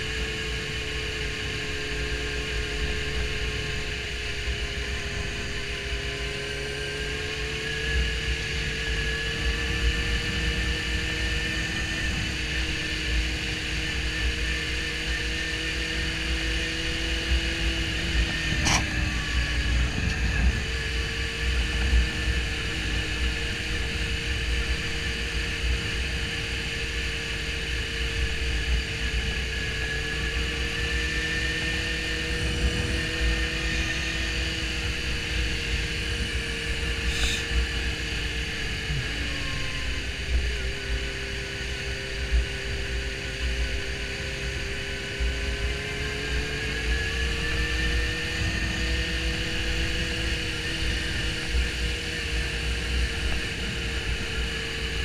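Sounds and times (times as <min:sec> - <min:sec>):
motorcycle engine cruising: 0:00.0 - 0:55.0
wind buffeting microphone: 0:31.4 - 0:36.7.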